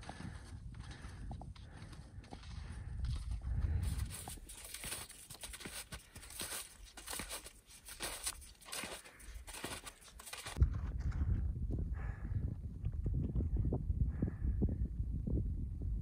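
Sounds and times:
skis crunching over snow: 0.9 - 10.6.

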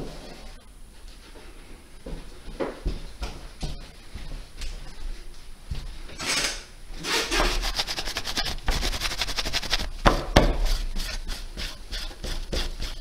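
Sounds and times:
cloth rubbing circuit board: 7.0 - 9.9.

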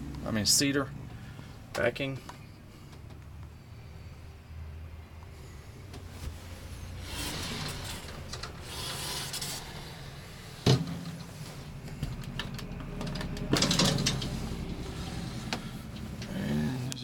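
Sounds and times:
closet door scraping: 6.4 - 11.8.

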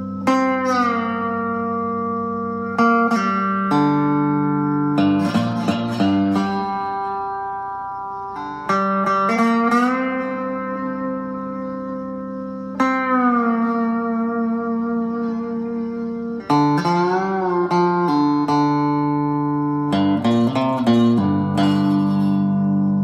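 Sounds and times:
guitar strums: 0.0 - 23.0
slide guitar: 0.0 - 23.0.

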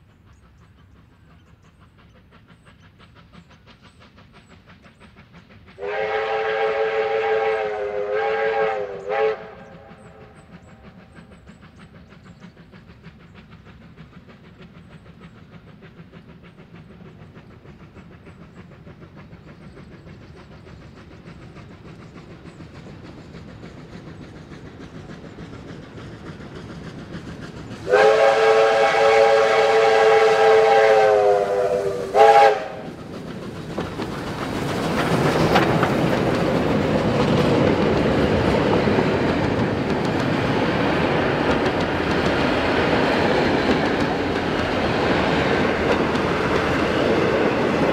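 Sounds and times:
locomotive running rumble: 0.0 - 47.9
steam whistle blast: 5.8 - 10.4, 27.8 - 32.9.

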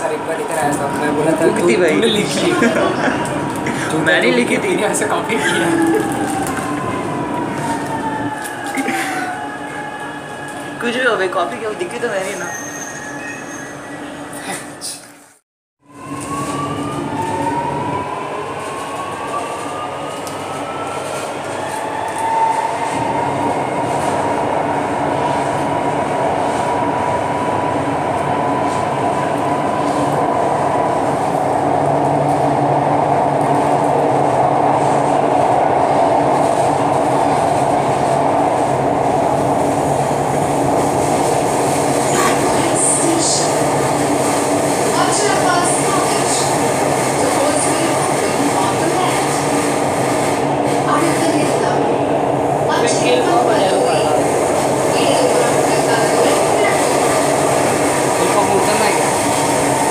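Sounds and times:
train wheels and air noise: 15.9 - 59.9.

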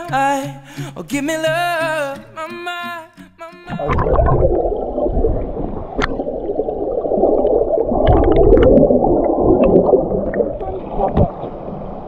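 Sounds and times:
muffled underwater churning: 3.7 - 12.0.

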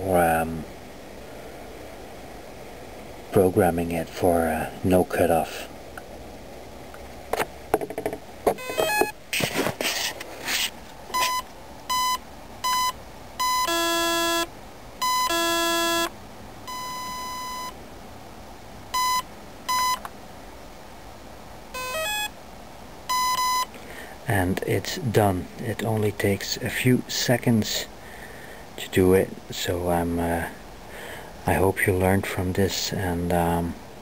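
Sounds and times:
handling clicks and knocks: 7.4 - 9.1
electronic beeps: 8.6 - 9.2, 11.1 - 14.4, 23.1 - 23.7.

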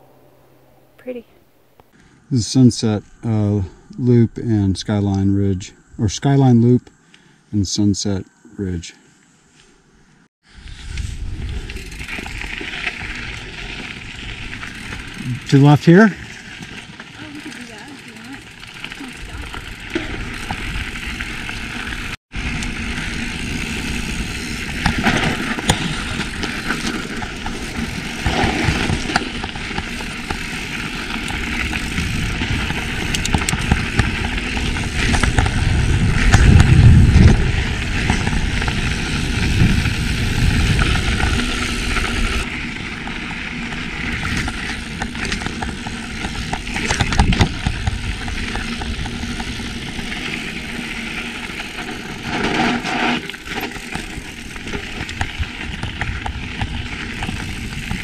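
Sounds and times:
low rumble: 0.0 - 1.9, 31.7 - 42.4
bike tyre and frame rattle: 10.4 - 58.0
wind on microphone: 31.4 - 42.7.

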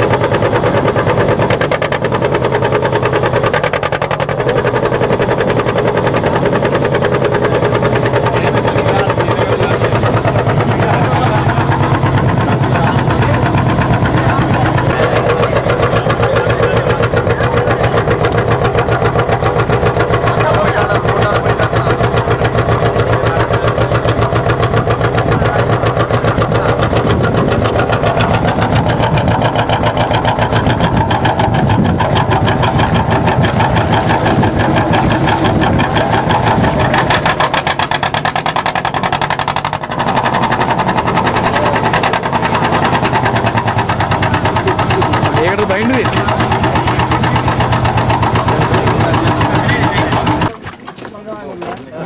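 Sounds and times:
motorboat engine running: 0.0 - 52.0.

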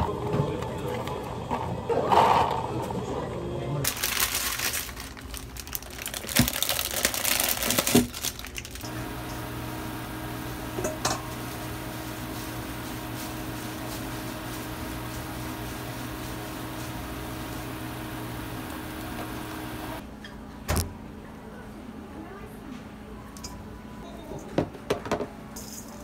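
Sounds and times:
hands crinkling and rustling: 3.9 - 8.9
pot boiling: 8.8 - 20.0
induction cooktop hum: 8.8 - 20.9.

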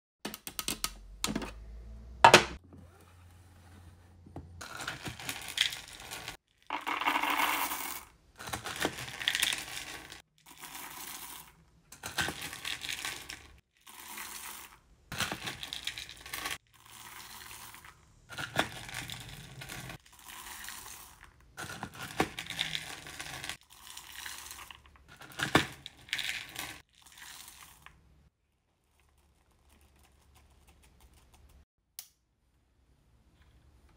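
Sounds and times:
wax beads pouring into pot: 5.2 - 8.1, 9.0 - 11.6, 12.4 - 14.8, 15.6 - 21.4, 22.3 - 25.0, 25.8 - 27.9.

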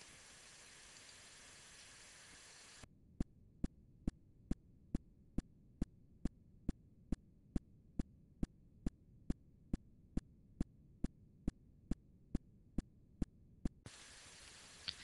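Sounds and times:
faint hiss: 0.0 - 2.8, 13.9 - 15.0.

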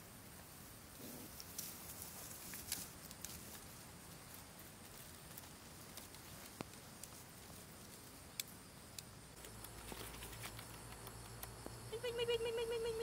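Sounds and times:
faint clicks: 8.3 - 11.8.

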